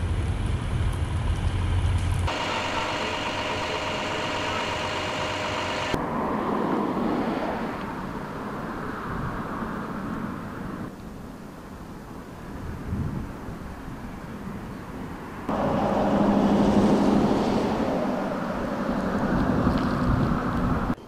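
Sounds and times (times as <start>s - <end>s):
fire engines idling: 0.0s - 6.0s, 15.5s - 20.9s
distant helicopter rotor: 0.1s - 10.9s, 15.5s - 21.0s
wind rumble on microphone: 12.3s - 15.4s, 16.0s - 21.0s.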